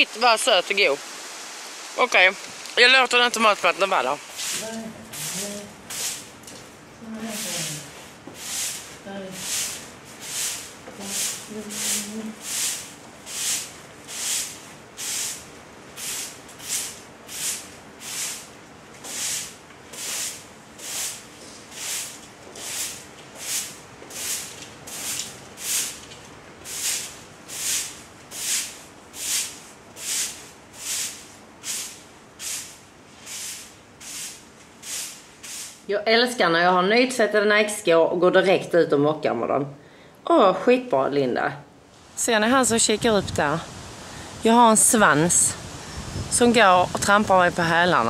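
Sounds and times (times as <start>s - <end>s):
straw broom sweeping: 3.8s - 6.4s, 7.1s - 35.9s.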